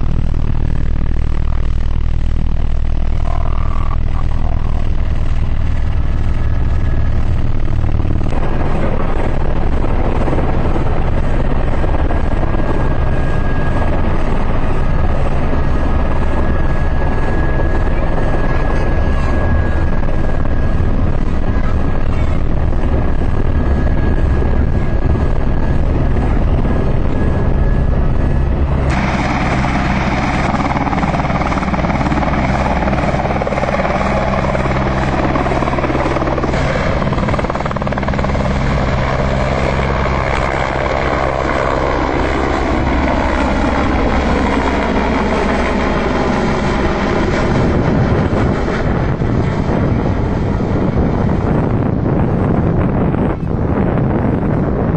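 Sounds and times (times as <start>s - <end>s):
helicopter engine and rotor: 0.0s - 54.9s
whining tones falling in pitch: 26.3s - 47.5s.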